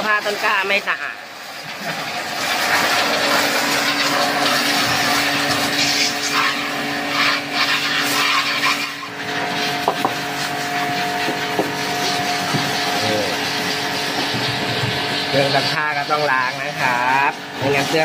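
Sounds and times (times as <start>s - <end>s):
pressure washer jet hissing: 1.7s - 18.0s.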